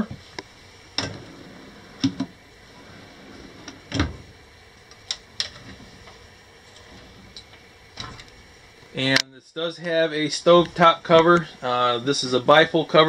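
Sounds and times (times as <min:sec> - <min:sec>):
wooden drawer sliding and knocking: 0:01.0 - 0:04.3.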